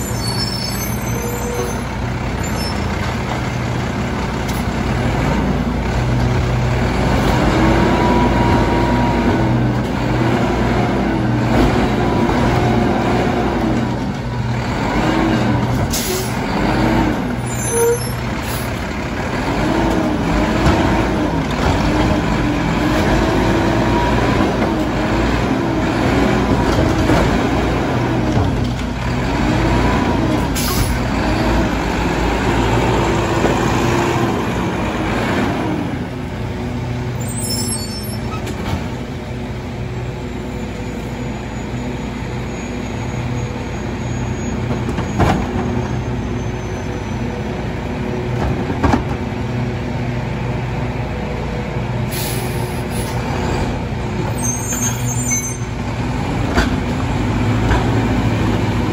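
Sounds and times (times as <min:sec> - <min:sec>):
garbage truck engine revving: 0:01.9 - 0:17.5, 0:18.2 - 0:37.4, 0:55.8 - 0:58.9.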